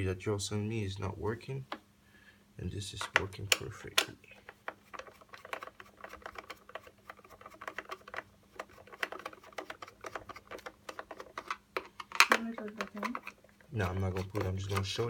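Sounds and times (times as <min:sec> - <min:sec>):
screwdriver clicking on screws: 0:04.7 - 0:13.4.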